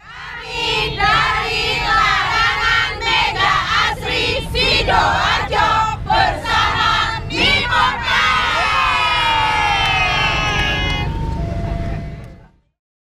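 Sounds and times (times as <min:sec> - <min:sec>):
women shouting and cheering: 0:06.3 - 0:11.9.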